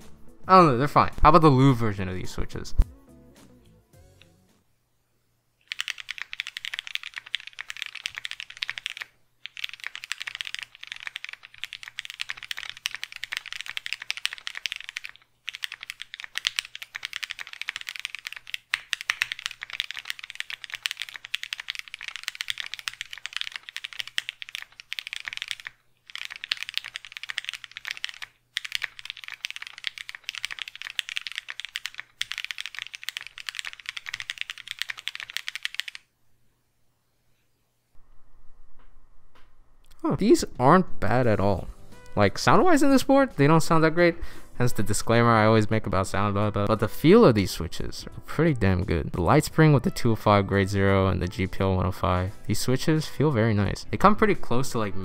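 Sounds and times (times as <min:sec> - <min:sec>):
mechanical keyboard typing: 0:05.6 - 0:36.1.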